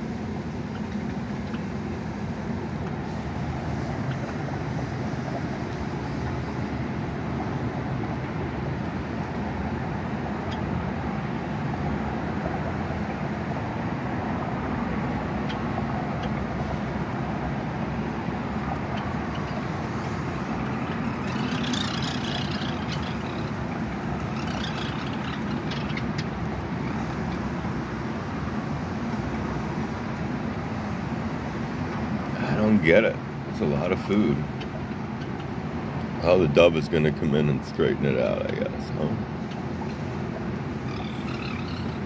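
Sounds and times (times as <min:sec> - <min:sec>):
low background rumble: 0:00.0 - 0:42.0
high bird chirping: 0:18.9 - 0:27.5, 0:40.8 - 0:42.0.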